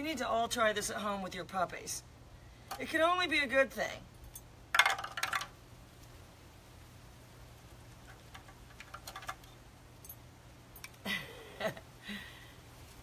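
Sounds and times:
low steady hum: 0.0 - 13.0
small hard objects clinking: 4.7 - 5.6, 8.1 - 9.6.

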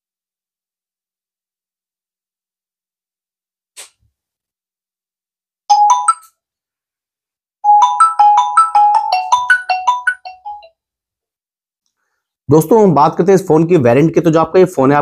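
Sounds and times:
bell-like tune from phone speakers: 5.7 - 6.4, 7.6 - 10.8.

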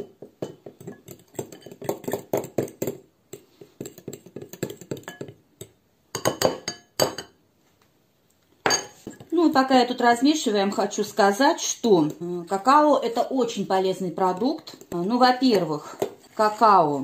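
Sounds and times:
spoon and fork clinking in glass bowl: 0.0 - 2.6, 3.8 - 5.4.

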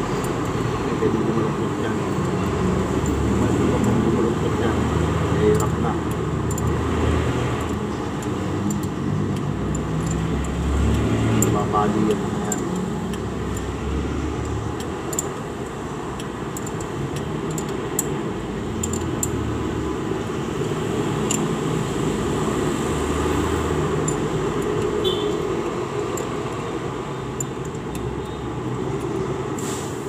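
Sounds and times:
metallic wrench clicks: 0.0 - 29.3.

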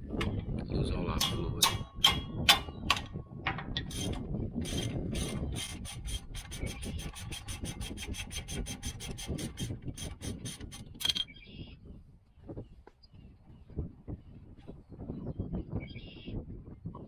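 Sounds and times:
socket ratchet clicking: 1.2 - 11.3.

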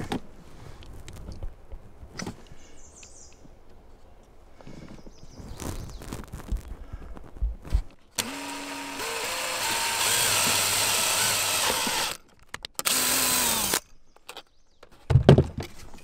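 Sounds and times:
power drill whining: 8.2 - 12.2, 12.8 - 13.9.

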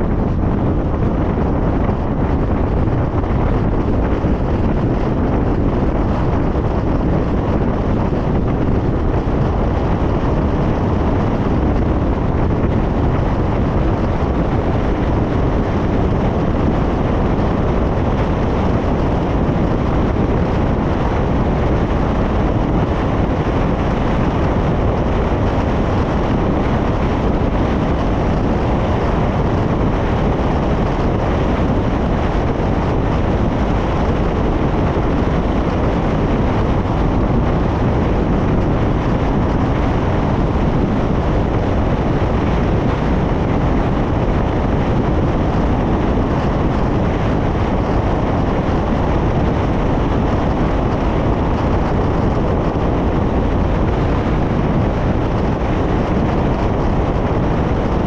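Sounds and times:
car tyre and wind noise: 0.0 - 58.0.

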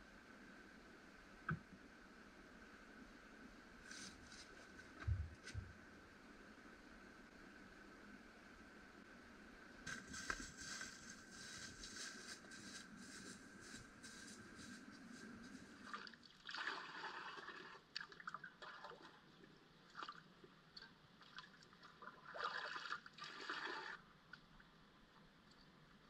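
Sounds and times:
creek water splashing and trickling: 15.8 - 20.4, 21.2 - 24.0.

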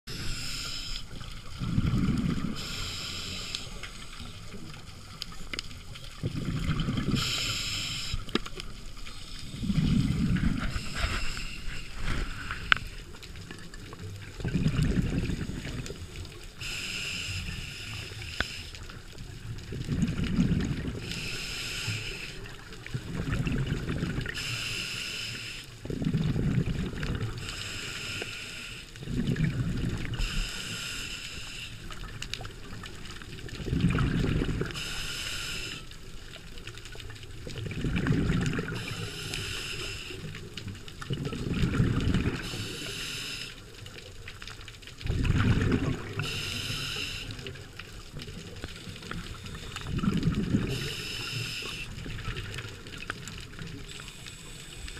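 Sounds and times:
regulator hiss on inhale: 0.1 - 4.7, 6.8 - 8.4, 9.0 - 13.2, 15.2 - 19.2, 20.8 - 22.9, 24.2 - 25.9, 27.3 - 29.1, 30.0 - 32.2, 34.6 - 36.5, 38.6 - 40.7, 42.2 - 43.8, 46.0 - 47.7, 48.4 - 52.6, 53.8 - 54.9
rumble of exhaled bubbles: 0.1 - 7.5, 8.1 - 16.6, 18.9 - 21.5, 22.3 - 24.4, 25.8 - 27.8, 29.0 - 30.6, 31.9 - 35.0, 36.0 - 39.5, 40.1 - 42.8, 43.6 - 54.9.

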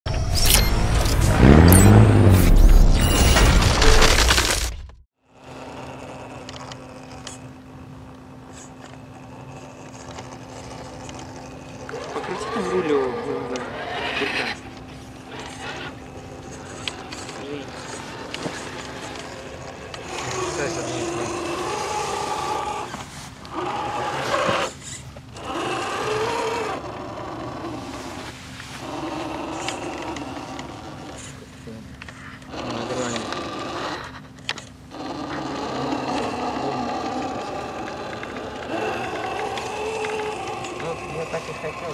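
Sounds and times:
electric motor humming: 5.3 - 41.9.

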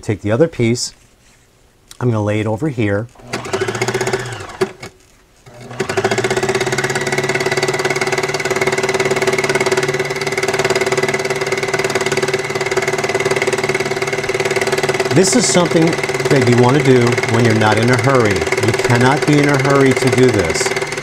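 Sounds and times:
needle-felting machine running: 3.2 - 21.0.

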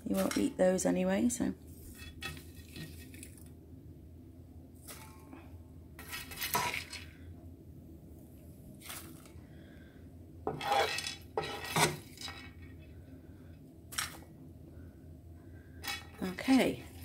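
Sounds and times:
spoon scraping frying pan: 6.0 - 7.1, 10.5 - 12.6
popcorn clattering into metal bowl: 6.0 - 7.2.

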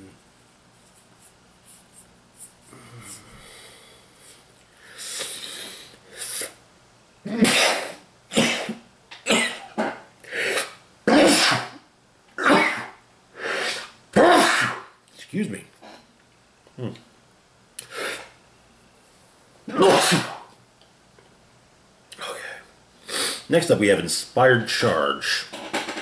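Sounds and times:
man breathing: 2.6 - 6.5
man coughing harshly: 7.3 - 11.8, 12.4 - 13.0, 14.2 - 14.9, 19.7 - 20.5.

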